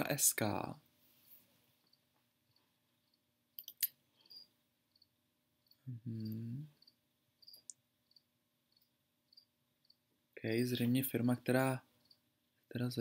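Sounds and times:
cricket chirping: 1.8s - 10.4s, 11.9s - 12.7s
man humming: 5.8s - 6.8s.

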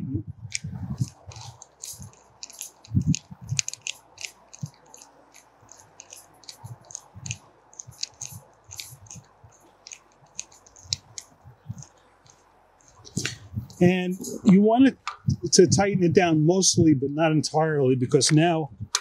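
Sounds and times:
metallic clicks and scrapes: 0.5s - 15.4s.

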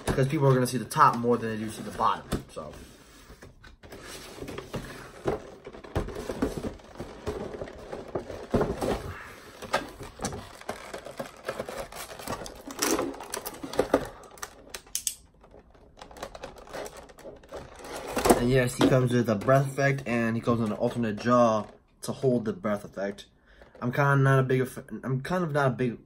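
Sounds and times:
plastic packaging rustling: 0.0s - 19.7s.

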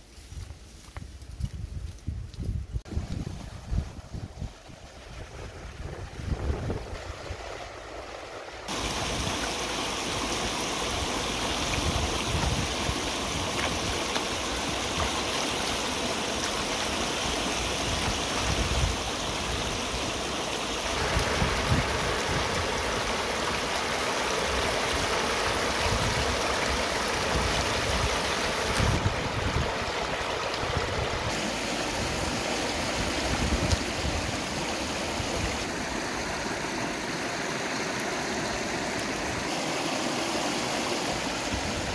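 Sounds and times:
river water rushing over rocks: 6.9s - 41.9s.

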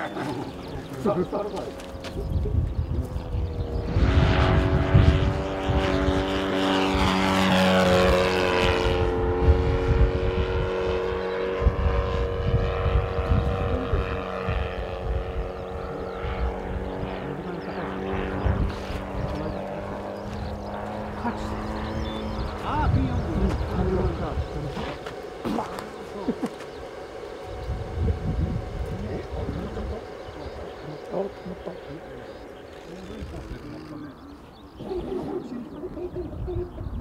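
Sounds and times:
model airplane engine running: 0.0s - 37.0s.

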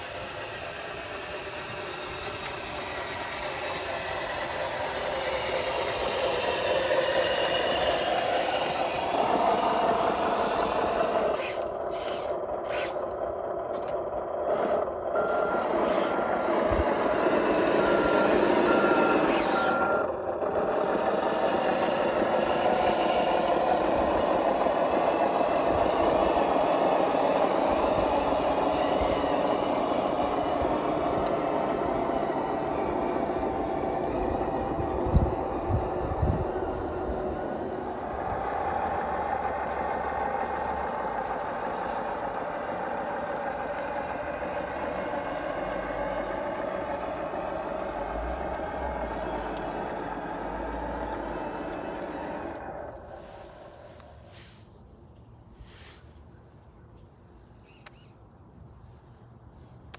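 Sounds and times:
toy truck motor running: 0.0s - 54.3s, 57.5s - 58.3s
reversing beeper: 15.1s - 20.2s.

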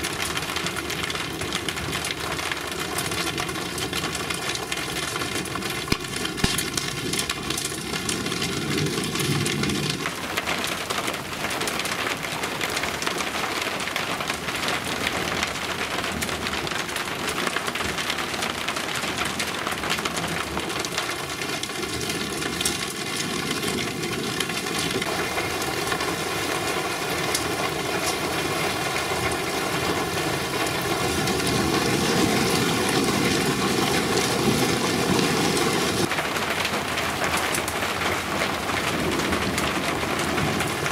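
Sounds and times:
heavy rain pouring: 0.0s - 40.9s.

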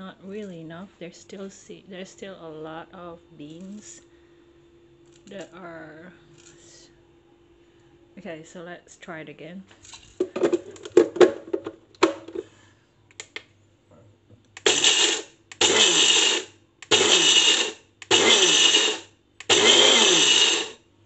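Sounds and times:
grinder clicks: 14.5s - 20.8s
blender grinding coffee beans: 14.6s - 20.8s.

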